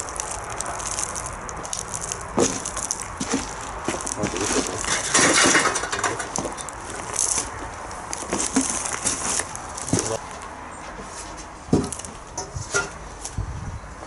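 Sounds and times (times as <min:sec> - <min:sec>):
footsteps crunching over debris: 0:00.0 - 0:13.4.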